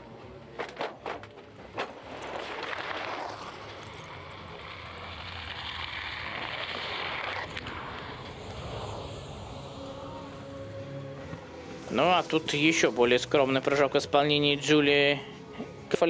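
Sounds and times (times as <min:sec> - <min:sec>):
skis rushing down track: 0:01.8 - 0:09.7.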